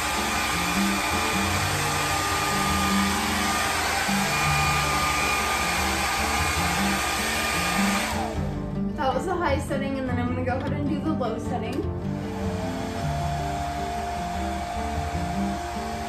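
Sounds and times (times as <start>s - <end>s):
hair dryer blowing air: 0.0s - 8.7s, 12.1s - 16.0s
motor whine: 0.0s - 8.7s, 12.1s - 16.0s.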